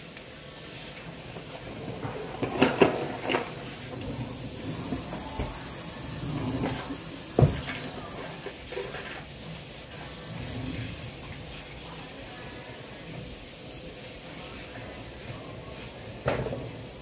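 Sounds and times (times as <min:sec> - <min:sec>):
low clatter and rustling: 0:01.4 - 0:09.4
kitchen knocks: 0:07.4 - 0:07.8.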